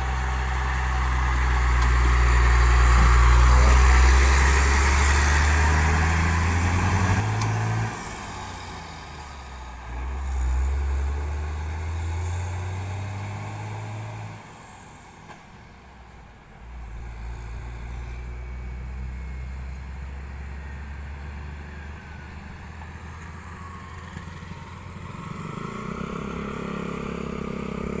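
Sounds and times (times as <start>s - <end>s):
diesel truck engine running: 0.0s - 28.0s
road traffic passing: 0.0s - 28.0s.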